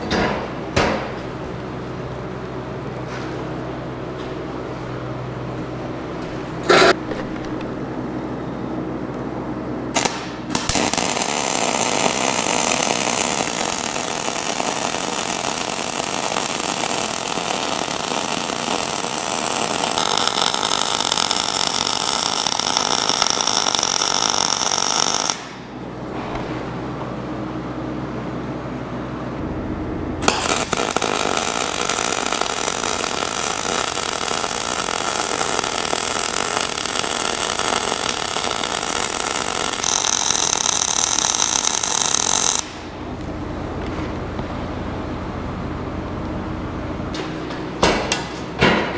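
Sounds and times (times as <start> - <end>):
low machine hum: 0.0 - 48.9
arc welding: 9.9 - 25.8, 30.2 - 42.9.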